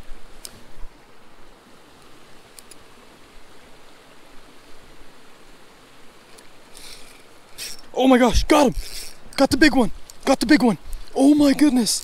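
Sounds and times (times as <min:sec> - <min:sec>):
rushing outdoor background noise: 0:00.0 - 0:12.0
faint ticks: 0:02.0 - 0:02.9, 0:06.2 - 0:07.9, 0:10.0 - 0:11.2.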